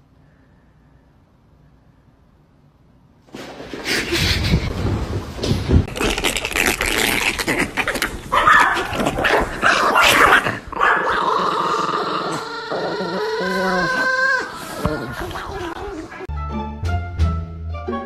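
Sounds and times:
dog whining: 7.3 - 16.3
dog yipping: 8.3 - 11.2.

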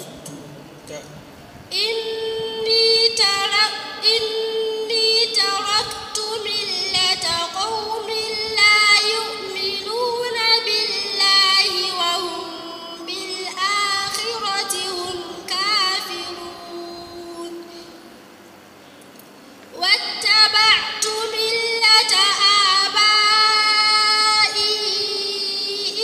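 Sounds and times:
girl chanting melodically: 1.7 - 18.0, 19.7 - 26.0.

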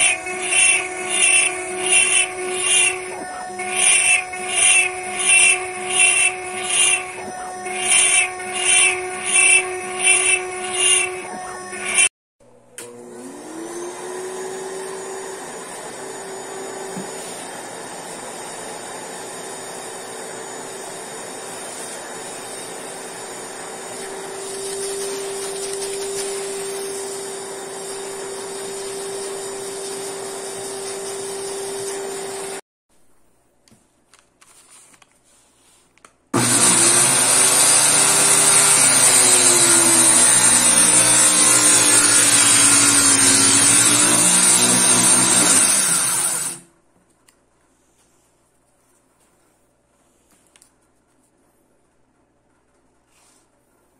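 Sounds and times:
shop vacuum running: 0.0 - 12.1, 12.7 - 32.6, 36.4 - 46.7
table saw cutting wood: 0.0 - 12.1, 12.8 - 32.6, 36.4 - 46.7.

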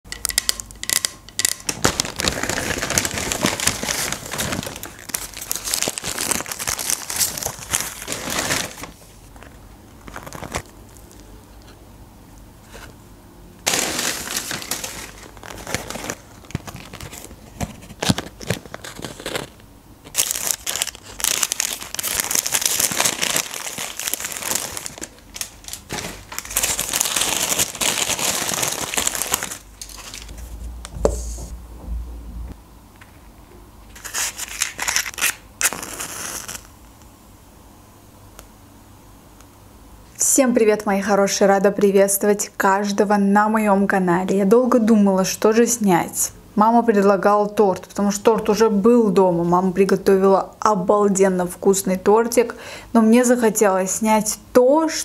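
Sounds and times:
paper wrappers crinkling: 0.9 - 11.3, 13.6 - 31.4, 34.0 - 36.7.

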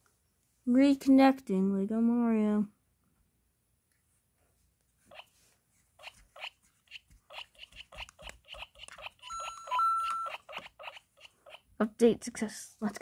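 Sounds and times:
toy electronic blips and clicks: 7.3 - 11.7
steady electronic beep: 9.3 - 10.5.

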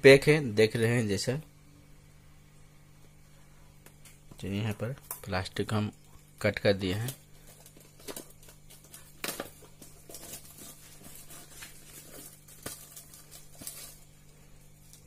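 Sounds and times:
plastic wrap crinkling: 6.0 - 15.0.

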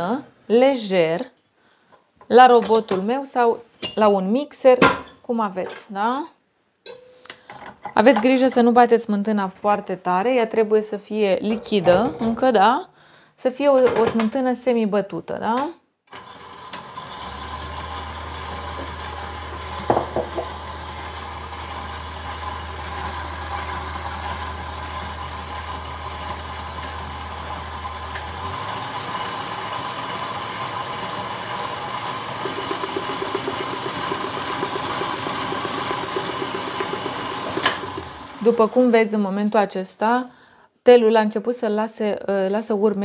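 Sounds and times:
stand mixer motor running: 16.2 - 38.8
whisk beating cream: 28.4 - 38.8.

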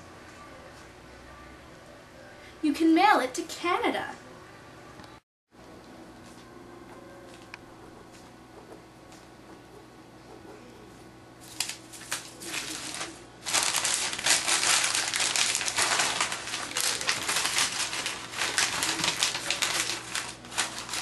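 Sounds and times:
paper notes crumpling: 11.4 - 21.0.

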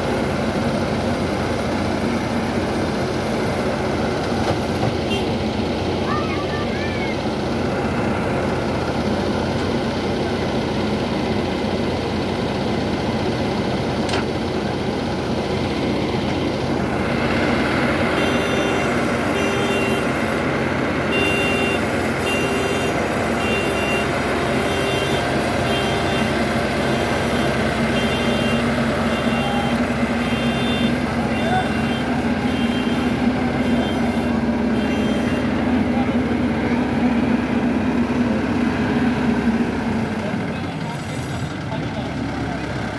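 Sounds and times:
diesel engine running: 0.0 - 42.9
reversing alarm beeping: 18.0 - 20.2, 21.1 - 35.5.

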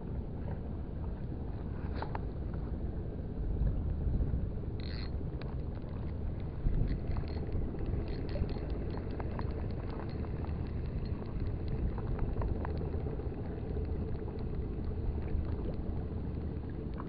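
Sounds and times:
steady low rumble: 0.0 - 17.0
spinning reel clicking: 4.8 - 5.1.

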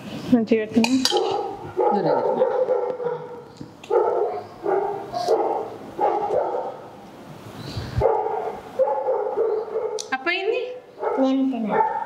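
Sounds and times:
dog barking: 1.1 - 7.0, 8.0 - 10.0, 11.0 - 12.0.

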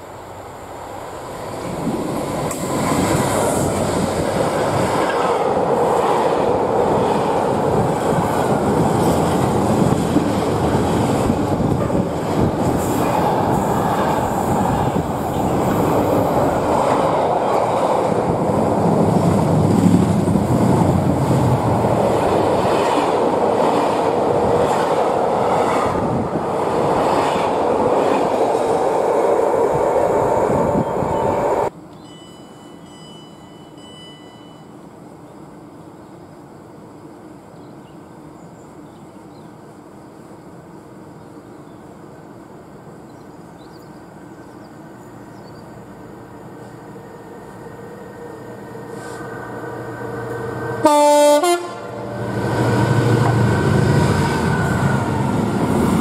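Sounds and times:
freight train wheels on rails: 0.0 - 34.8, 40.1 - 56.0.

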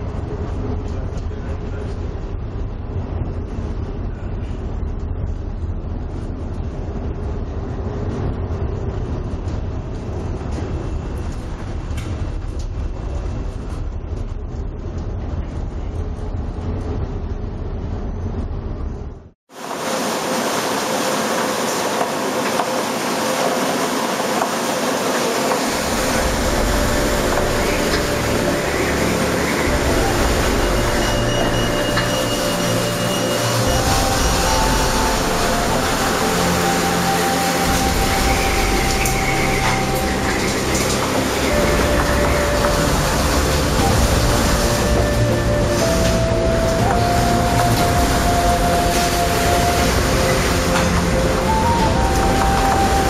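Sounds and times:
storm wind and heavy seas: 0.0 - 53.0
gale wind and spray: 19.5 - 53.0.

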